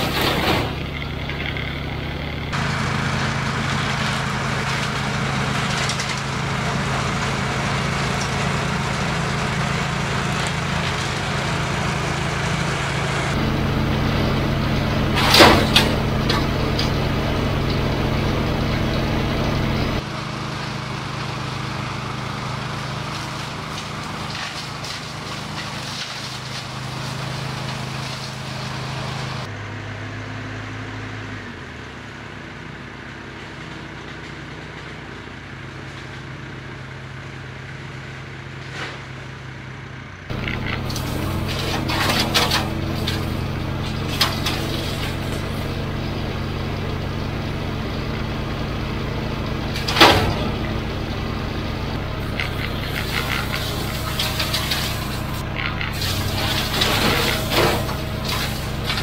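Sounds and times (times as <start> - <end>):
small engine running: 0.0 - 32.8, 39.7 - 59.0
loader engine: 0.0 - 59.0
blades cracking through branches: 23.1 - 29.4.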